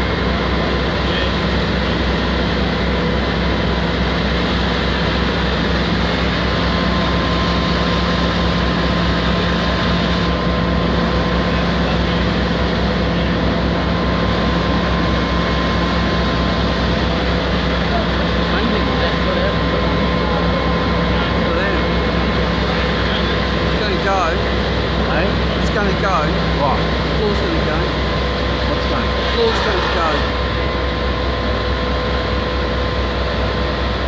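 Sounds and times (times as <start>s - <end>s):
faint steady whines: 0.0s - 34.0s
fire engine pump drone: 0.0s - 34.0s.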